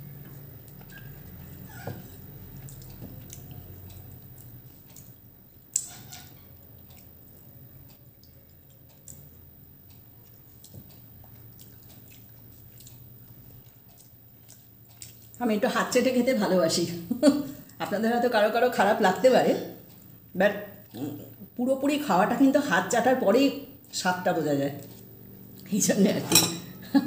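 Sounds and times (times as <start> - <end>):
low steady hum: 0.0 - 27.0
person chewing and smacking: 0.1 - 15.4, 19.7 - 21.4, 24.7 - 25.7.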